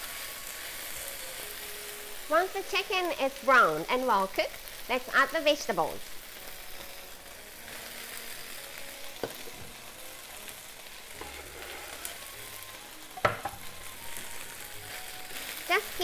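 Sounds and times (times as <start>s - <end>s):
chicken sizzling in oil: 0.0s - 16.0s
wooden spatula stirring: 11.2s - 12.2s.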